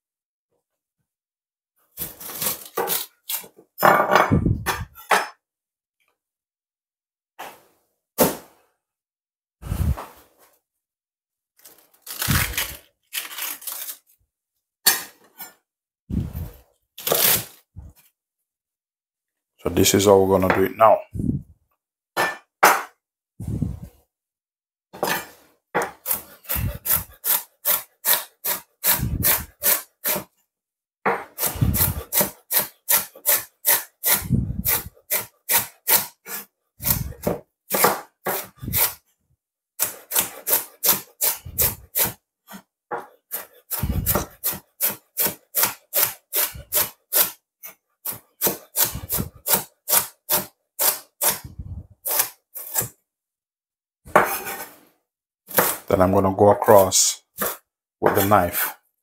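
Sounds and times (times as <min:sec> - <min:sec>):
knife slicing cabbage: 0:02.0 - 0:03.6, 0:11.6 - 0:14.2, 0:16.4 - 0:17.7, 0:25.0 - 0:30.3, 0:31.2 - 0:39.0, 0:39.8 - 0:53.0, 0:54.1 - 0:54.8, 0:55.5 - 0:55.9, 0:57.4 - 0:58.8.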